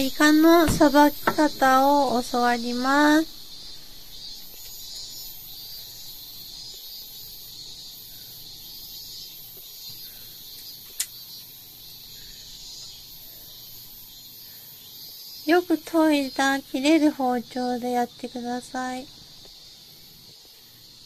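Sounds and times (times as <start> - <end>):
faint high-pitched hiss: 0.0 - 21.0
sharp click: 10.9 - 11.2.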